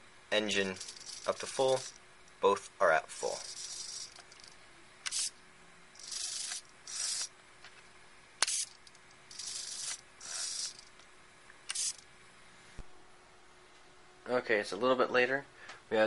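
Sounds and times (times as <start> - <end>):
servos whirring: 0.6 - 2.0, 3.1 - 7.4, 8.4 - 12.1.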